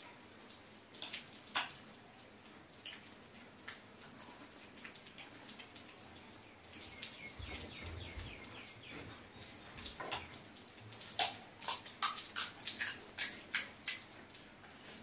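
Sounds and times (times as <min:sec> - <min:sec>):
crisp eating sounds: 0:10.9 - 0:15.0.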